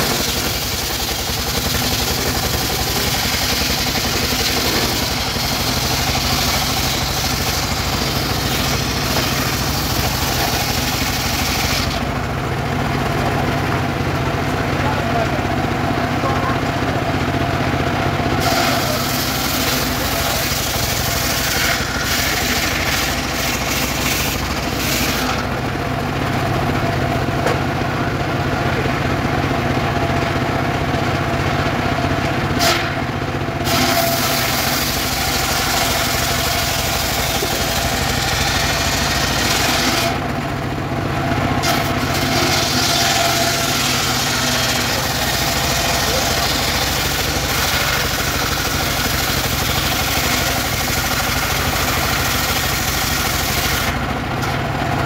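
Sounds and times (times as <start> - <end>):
saw blade ripping log: 0.0 - 12.1, 18.4 - 25.5, 32.6 - 33.0, 33.6 - 40.3, 41.6 - 54.6
sawmill engine drone: 0.0 - 55.0.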